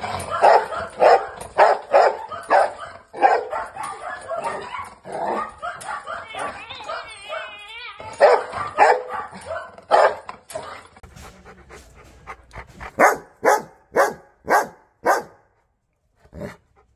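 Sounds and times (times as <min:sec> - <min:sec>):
dogs barking: 0:00.0 - 0:07.5, 0:08.2 - 0:15.5
dog panting: 0:10.9 - 0:15.3, 0:16.2 - 0:16.9.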